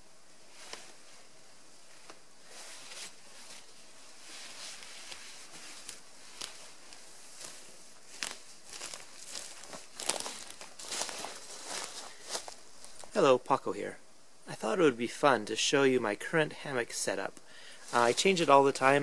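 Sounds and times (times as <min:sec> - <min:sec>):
hammock fabric rustling: 0:00.3 - 0:13.2, 0:17.8 - 0:18.9
footsteps through undergrowth: 0:02.6 - 0:13.2, 0:17.8 - 0:18.6.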